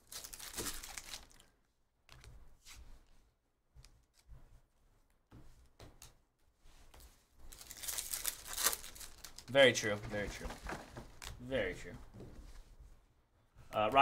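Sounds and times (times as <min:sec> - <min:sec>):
foil wrapper crinkling: 0:00.0 - 0:01.5, 0:07.5 - 0:11.3.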